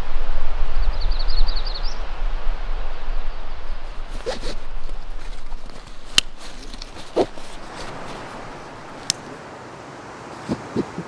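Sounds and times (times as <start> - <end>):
low rumble on microphone: 0.0 - 9.0
outdoor rushing noise: 0.0 - 9.4
songbird trill: 0.8 - 2.1
backpack cords rustling: 3.9 - 9.4
backpack cord clicks: 4.2 - 9.3.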